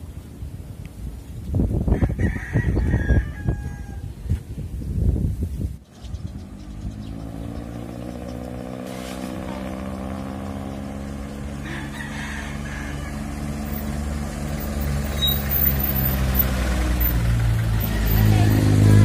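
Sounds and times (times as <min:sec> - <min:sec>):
diesel engine running: 0:05.9 - 0:19.0.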